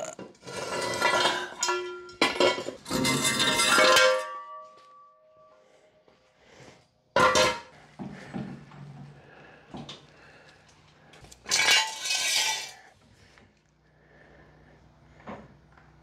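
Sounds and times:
metal jack stands clanging on concrete: 0.4 - 4.7.

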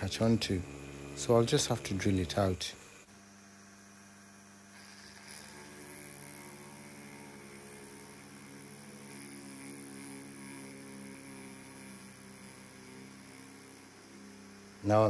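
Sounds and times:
small electric drill boring steel: 0.0 - 15.0.

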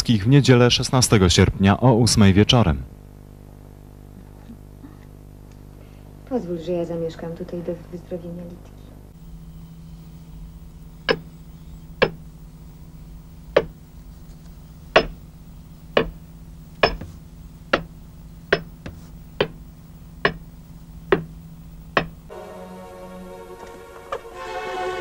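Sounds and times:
steady low hum: 0.0 - 25.0
axes chopping tree trunk: 15.0 - 15.2, 16.8 - 17.9.

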